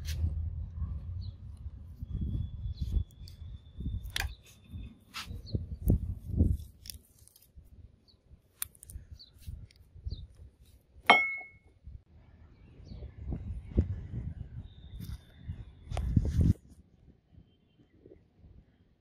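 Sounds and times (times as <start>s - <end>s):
handling noise and light clicks: 8.5s - 11.6s
steel clink ringing: 11.1s - 11.6s.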